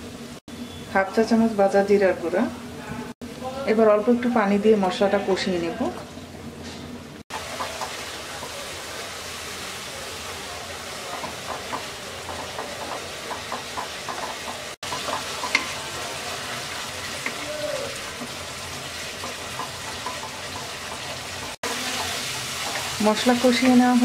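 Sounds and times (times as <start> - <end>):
masala sizzling and bubbling: 0.0 - 24.0
spatula scraping wok: 10.9 - 24.0.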